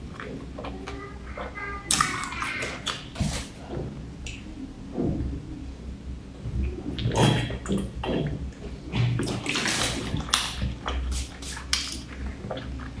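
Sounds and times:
person gulping: 6.6 - 11.1
drink sloshing in plastic bottle: 7.0 - 13.0.

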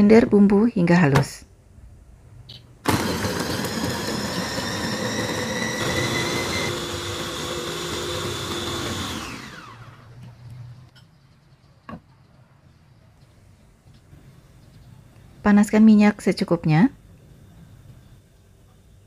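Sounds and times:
food chopper motor running: 2.9 - 10.1.

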